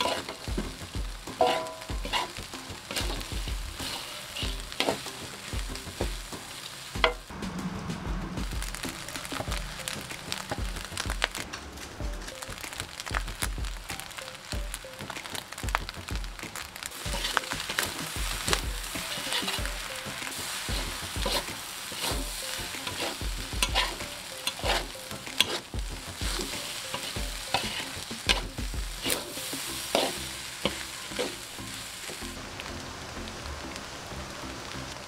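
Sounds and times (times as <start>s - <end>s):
metal spatula scraping a wok: 0.0s - 0.5s, 1.3s - 7.2s, 16.9s - 32.2s
rice sizzling in a wok: 0.0s - 7.4s, 8.4s - 35.0s.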